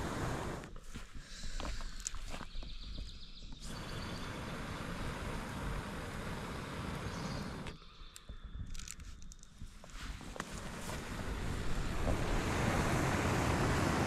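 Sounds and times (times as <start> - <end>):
wind rushing through trees: 0.0 - 0.8, 2.8 - 8.7, 9.6 - 14.0
wind buffeting microphone: 0.0 - 14.0.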